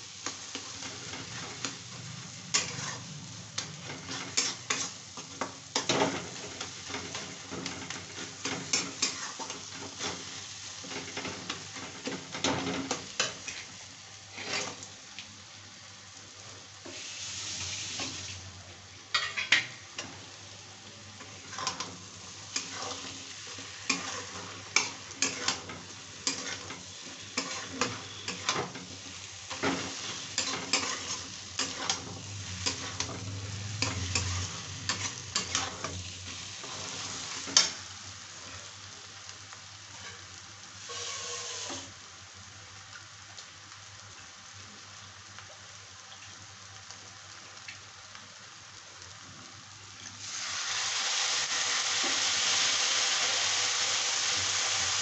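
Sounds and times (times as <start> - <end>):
sizzle of frying in oil: 0.0 - 55.0
metal spatula scraping a pan: 2.5 - 13.7, 14.3 - 14.8, 21.2 - 37.8, 39.9 - 41.9.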